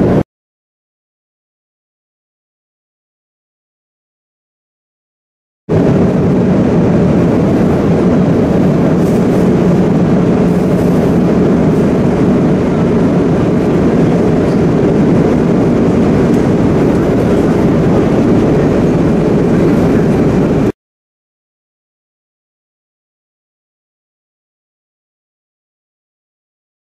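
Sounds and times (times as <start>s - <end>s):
airplane cabin drone: 0.0s - 0.2s, 5.7s - 20.8s.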